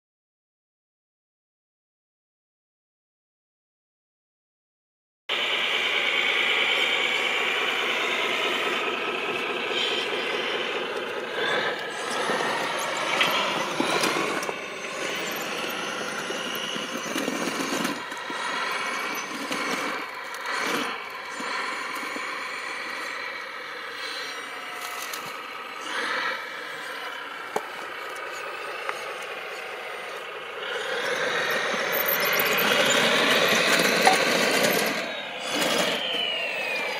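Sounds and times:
electric motors and gears whining: 5.3 - 36.9.

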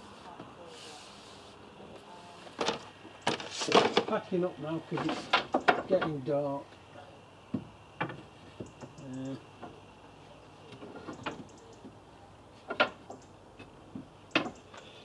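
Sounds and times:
wood and tools clattering: 2.5 - 6.3, 12.5 - 15.0.

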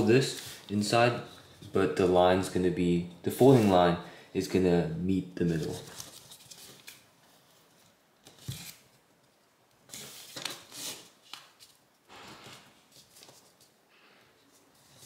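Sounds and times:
paper rustling and crinkling: 5.5 - 7.6, 9.9 - 13.8.

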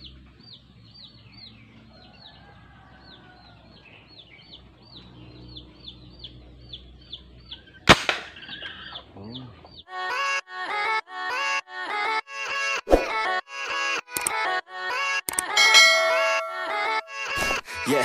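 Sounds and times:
gas gun shot: 7.9 - 8.4
bird calling in high falling notes: 15.6 - 17.4.

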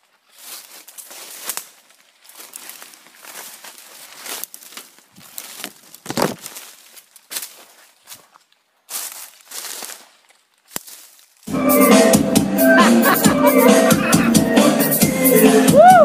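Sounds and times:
footsteps crunching through dry leaves: 0.0 - 11.5
rustling thump: 5.2 - 6.7.

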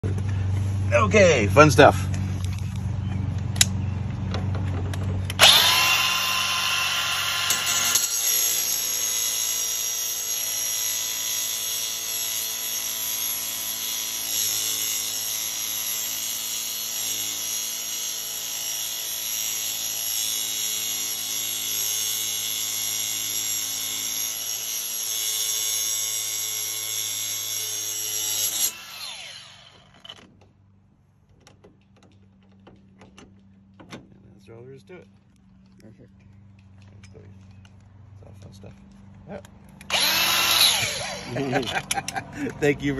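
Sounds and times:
angle grinder whining: 5.3 - 30.3, 39.8 - 42.4
grinder cutting metal hiss: 5.4 - 20.4.

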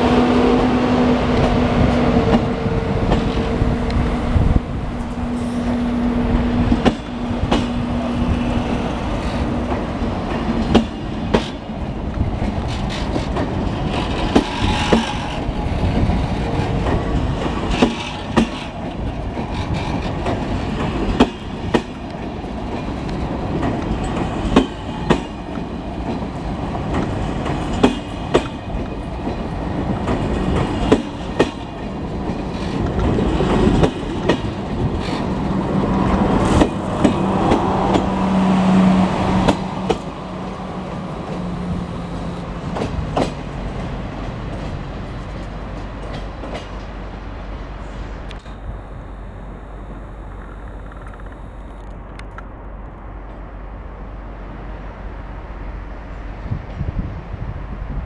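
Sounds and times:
train rolling past: 0.0 - 58.0
wheels clicking over rail joint: 9.2 - 35.4, 50.1 - 52.5.

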